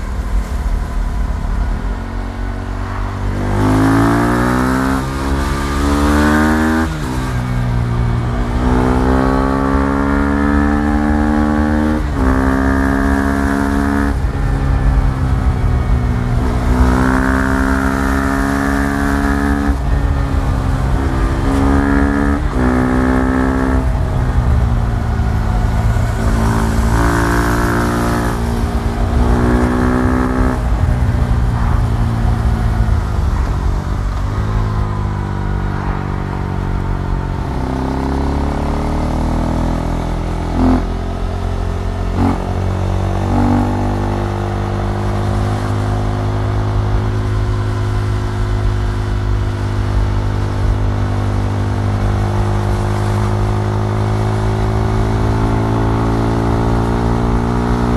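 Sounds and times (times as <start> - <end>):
motorcycle engine revving through gears: 0.0 - 57.9.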